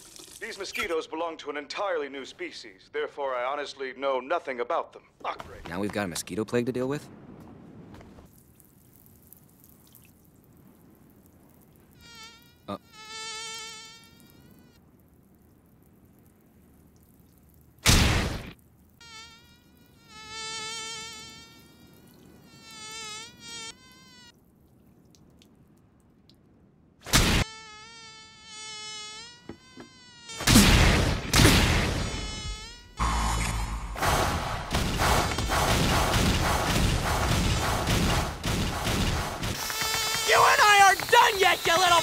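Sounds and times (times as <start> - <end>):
mosquito whine: 32.0 - 33.7.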